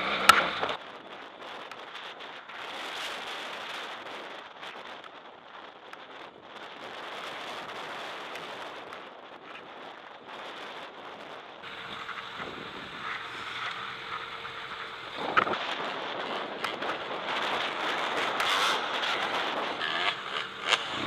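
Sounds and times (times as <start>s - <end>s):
motorcycle engine running: 0.0s - 0.8s, 11.6s - 21.0s
wind rushing over microphone: 0.0s - 21.0s.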